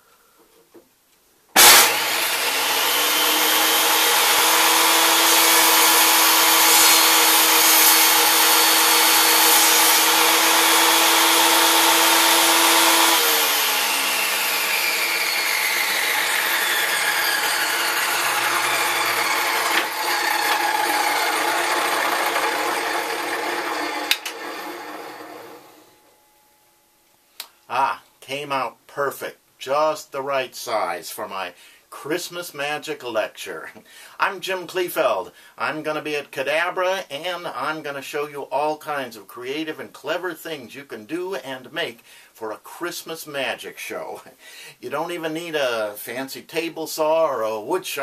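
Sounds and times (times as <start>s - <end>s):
table saw coasting down: 1.6s - 25.9s
table saw running: 1.6s - 25.9s.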